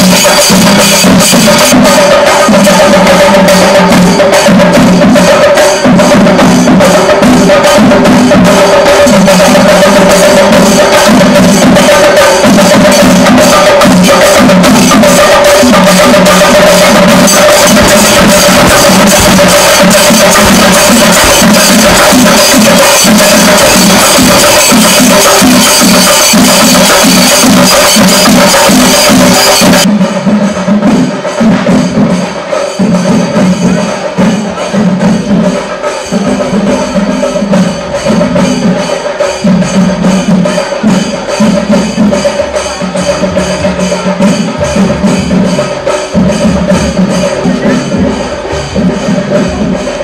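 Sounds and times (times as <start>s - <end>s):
cymbals: 0.0s - 50.0s
drums played with sticks: 0.0s - 50.0s.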